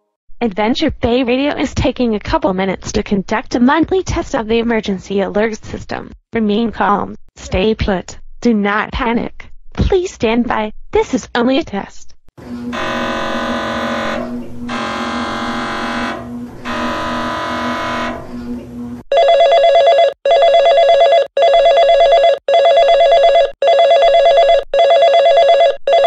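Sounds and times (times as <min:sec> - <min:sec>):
buzzing alert tone: 0:12.4 - 0:19.3.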